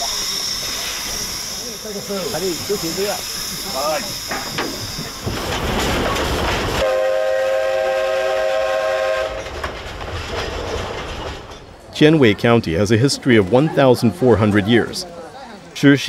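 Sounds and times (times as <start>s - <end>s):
steam hissing: 0.0s - 10.0s
train rumble: 0.0s - 15.7s
steam whistle blast: 6.8s - 9.4s.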